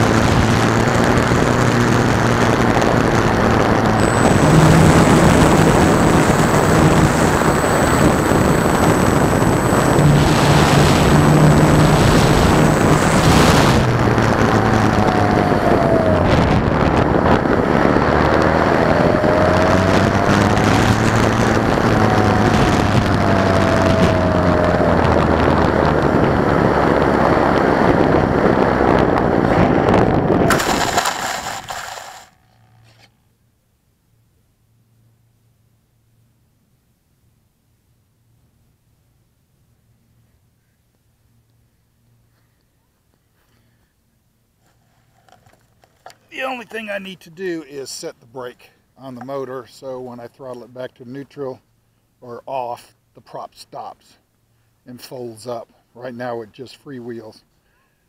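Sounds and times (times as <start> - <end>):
wind rush on microphone: 0.0 - 32.0
electric motor and propeller humming: 0.0 - 33.2.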